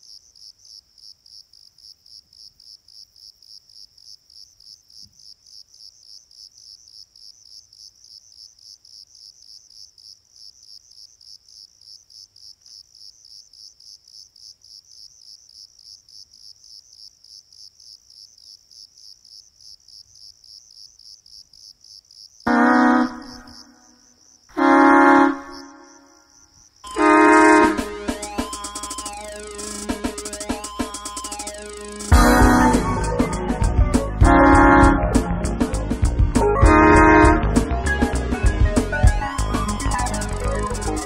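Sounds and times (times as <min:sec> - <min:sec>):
cricket chirping: 0:00.0 - 0:33.2, 0:39.0 - 0:41.0.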